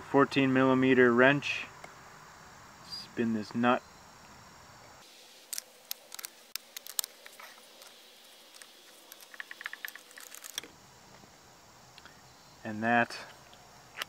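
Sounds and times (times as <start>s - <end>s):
wrench clicking: 8.5s - 10.7s.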